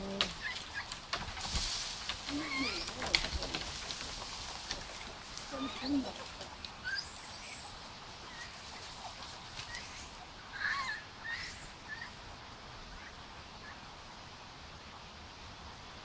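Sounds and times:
faint background noise: 0.0s - 16.0s
high animal calls and chirps: 2.3s - 3.4s, 5.4s - 12.4s.

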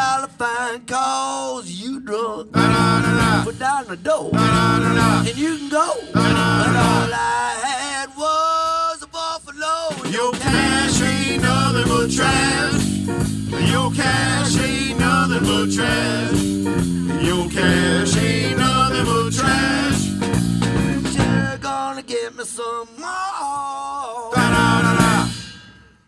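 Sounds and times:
electric blues band: 2.5s - 7.5s, 10.0s - 21.8s, 24.4s - 25.4s
blues harmonica: 2.6s - 3.5s, 4.4s - 5.6s, 6.2s - 7.2s, 10.4s - 21.6s, 24.4s - 25.4s
lone lead bending notes: 4.4s - 5.4s.

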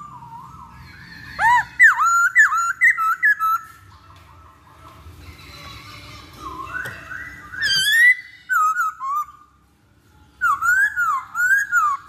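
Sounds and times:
bird whistling song: 0.0s - 3.8s, 6.4s - 9.6s, 10.4s - 12.0s.

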